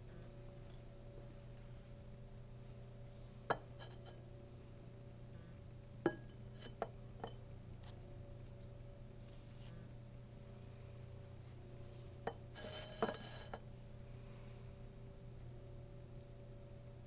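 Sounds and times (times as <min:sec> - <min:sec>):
steady low hum: 0:00.0 - 0:17.0
glass beaker clinking: 0:06.1 - 0:07.4, 0:12.3 - 0:13.6.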